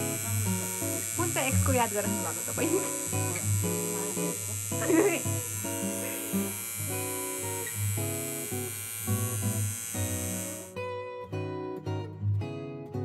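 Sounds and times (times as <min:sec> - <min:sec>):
person speaking: 0:00.0 - 0:06.6
tattoo machine buzzing: 0:00.0 - 0:10.8
quiet guitar music: 0:00.0 - 0:13.0.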